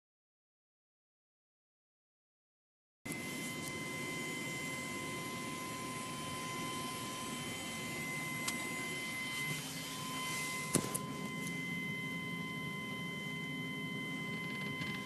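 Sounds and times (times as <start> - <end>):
electronic whine: 3.1 - 15.0.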